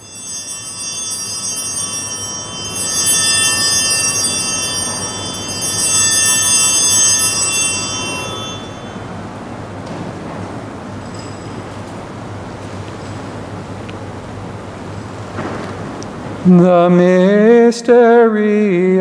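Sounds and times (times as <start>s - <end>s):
altar bells chiming: 0.0s - 14.5s.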